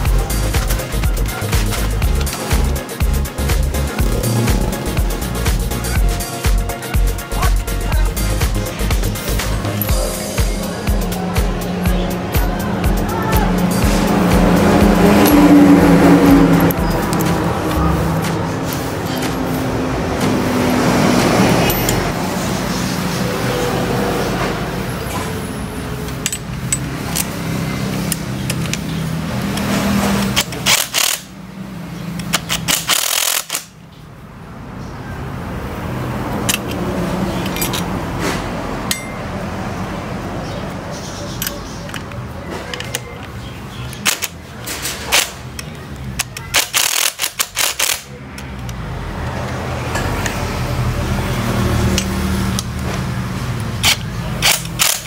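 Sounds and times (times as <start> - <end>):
steady mechanical running: 0.0 - 23.8
impact wrench hammering: 21.6 - 22.2, 26.1 - 28.9, 38.8 - 39.2.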